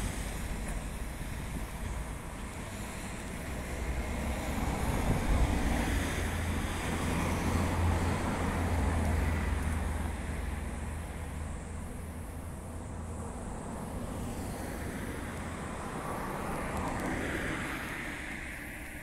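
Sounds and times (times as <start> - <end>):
wind buffeting microphone: 0.0 - 9.1
road traffic noise: 0.0 - 19.0.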